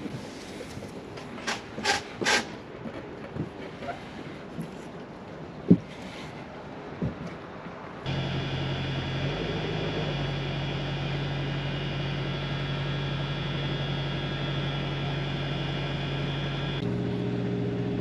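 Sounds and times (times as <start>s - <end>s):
boat engine droning: 5.4s - 18.0s.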